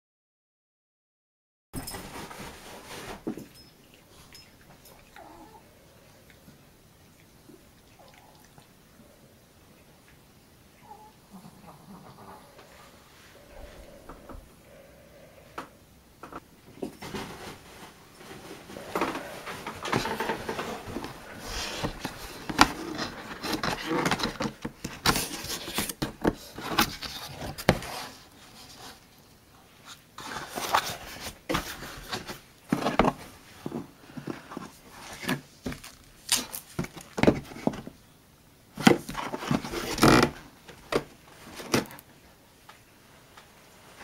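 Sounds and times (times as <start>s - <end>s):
cardboard packing rustling and scraping: 1.8s - 3.7s, 16.6s - 29.1s, 29.8s - 38.0s, 38.8s - 42.1s.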